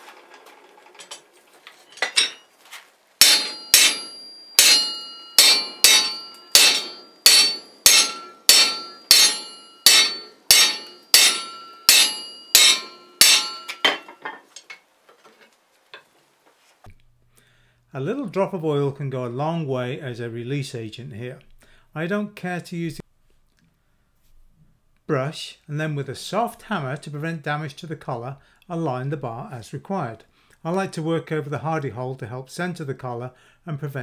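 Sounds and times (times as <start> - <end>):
hammer ringing on metal: 3.2 - 14.2.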